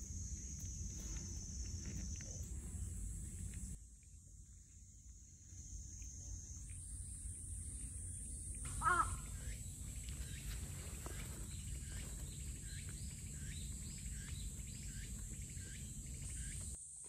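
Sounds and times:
high insect drone: 0:00.0 - 0:17.0
bird chirping: 0:08.1 - 0:16.8
loud pitched bird call: 0:08.7 - 0:09.7.

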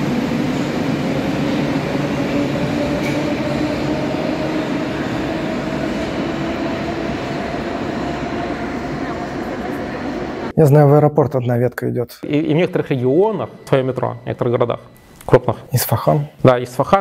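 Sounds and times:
metro train rumble: 0:00.0 - 0:10.6, 0:12.3 - 0:16.0.

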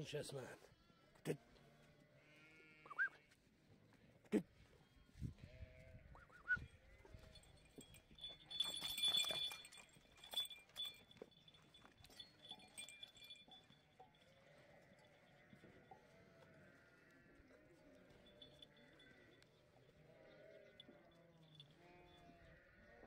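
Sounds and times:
sheep and lambs bleating: 0:00.6 - 0:03.4, 0:04.2 - 0:07.6, 0:14.3 - 0:23.0.

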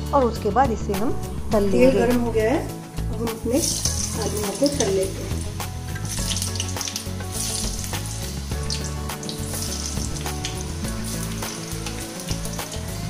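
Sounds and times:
potatoes sizzling in oil: 0:03.2 - 0:13.0
oil crackling and popping: 0:03.5 - 0:13.0.

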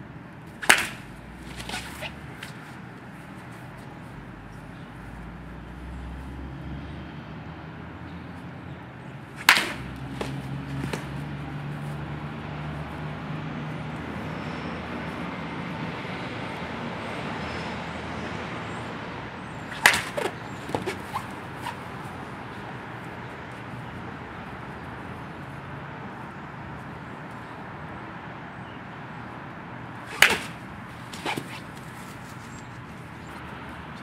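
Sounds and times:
baseball bat cracking ball: 0:00.5 - 0:02.6, 0:09.3 - 0:11.6, 0:19.6 - 0:22.2, 0:30.0 - 0:32.4.

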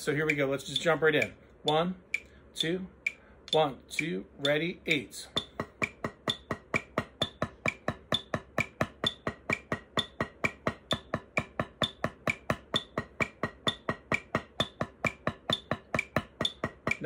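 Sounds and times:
drumsticks on practice pad: 0:00.0 - 0:17.0
metronome clicking: 0:00.0 - 0:17.0.

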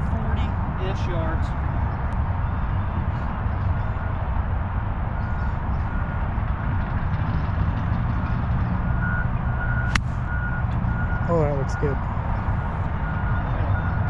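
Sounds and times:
faint reversing alarm beeps: 0:05.0 - 0:06.4, 0:08.8 - 0:14.0.

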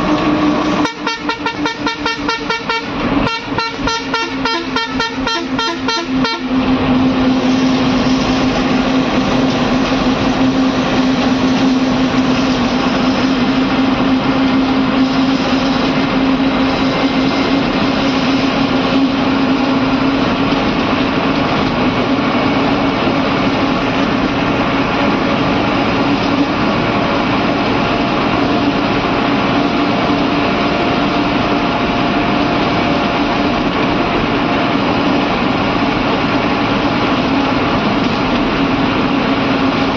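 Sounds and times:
bus engine droning: 0:00.0 - 0:39.9
road and rattle noise: 0:00.0 - 0:39.9
rapidly pulsing horn: 0:00.7 - 0:06.7.

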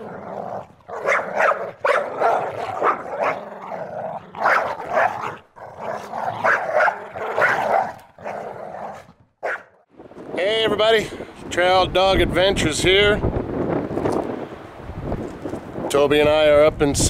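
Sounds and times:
dog barking: 0:00.9 - 0:03.4, 0:04.4 - 0:05.4, 0:06.0 - 0:09.8.

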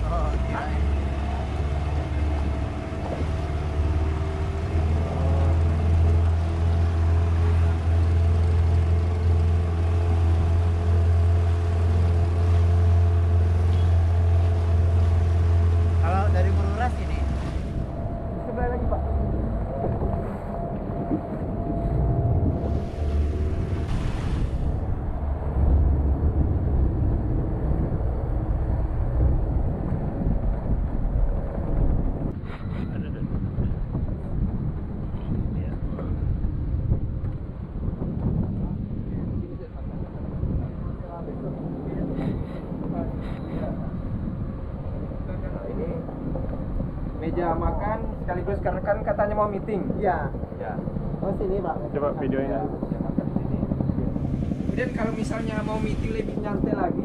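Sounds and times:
faint steady tones: 0:00.0 - 0:29.4
boat engine droning: 0:00.0 - 0:57.0
wind buffeting microphone: 0:00.0 - 0:57.0.

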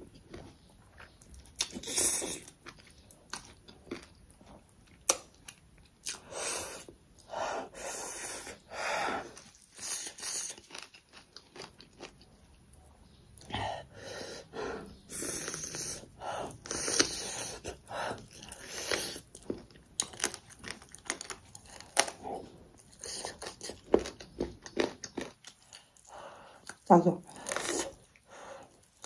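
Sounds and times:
person chewing food: 0:00.0 - 0:29.0
crunchy bites: 0:16.6 - 0:25.8.

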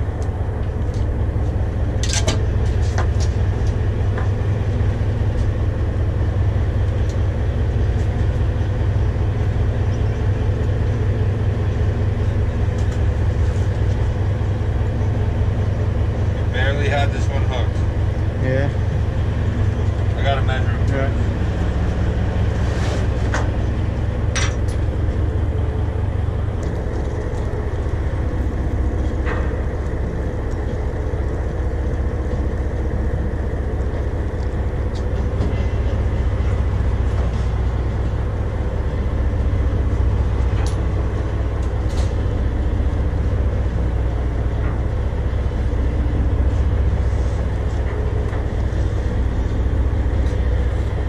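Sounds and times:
boat engine rumbling: 0:00.0 - 0:51.0.

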